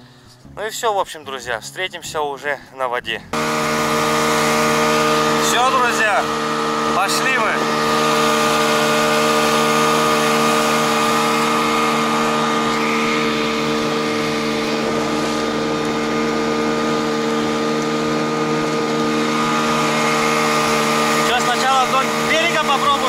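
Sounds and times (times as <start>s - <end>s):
outboard motor running: 3.3s - 23.0s.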